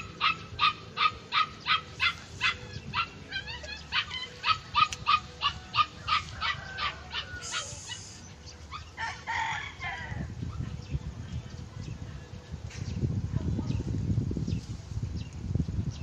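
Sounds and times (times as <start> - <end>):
dog yapping: 0.0 - 8.9
rooster crowing: 5.5 - 7.8.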